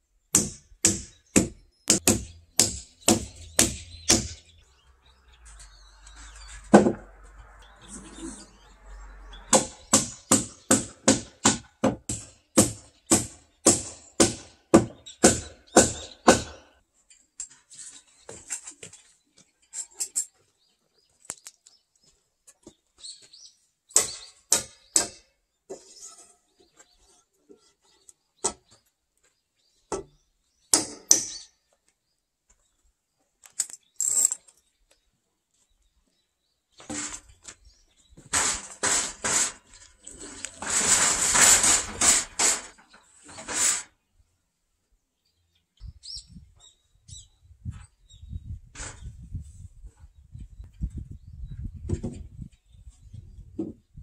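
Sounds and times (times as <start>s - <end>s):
hammer driving nails into wood: 0.3s - 4.4s
clatter of tools and wood: 17.0s - 20.6s, 36.8s - 43.9s.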